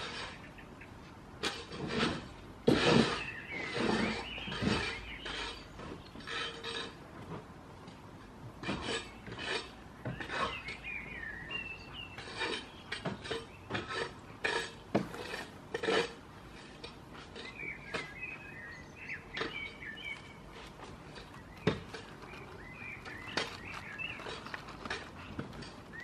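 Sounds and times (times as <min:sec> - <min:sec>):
birds chirping: 0:00.0 - 0:01.1, 0:02.9 - 0:06.8, 0:08.9 - 0:13.8, 0:17.3 - 0:26.0
goats rubbing against clothing: 0:20.4 - 0:26.0.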